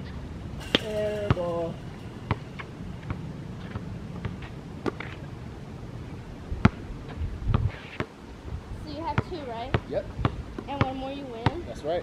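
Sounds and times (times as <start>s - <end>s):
low steady rumble: 0.0s - 7.5s
basketball bouncing on asphalt: 9.1s - 11.6s.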